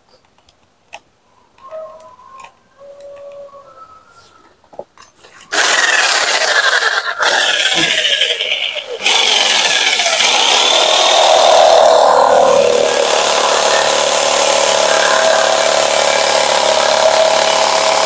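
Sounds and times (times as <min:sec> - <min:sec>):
jigsaw sawing through wood: 0:05.5 - 0:18.0.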